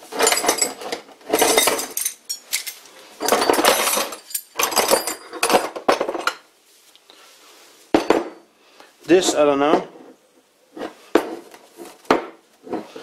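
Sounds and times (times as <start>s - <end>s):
steel rods rattling and clinking: 0.1s - 6.4s.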